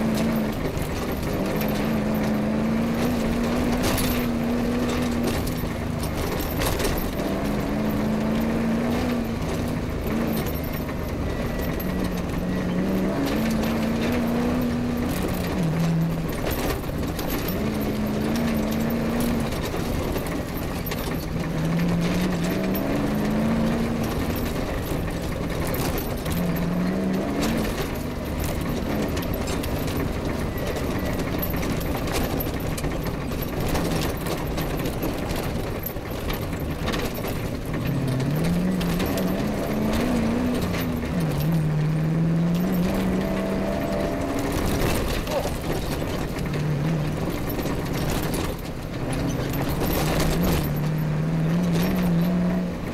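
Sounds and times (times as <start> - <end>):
rally car engine revving: 0.0 - 52.9
vehicle knocks and rattles: 0.0 - 52.9.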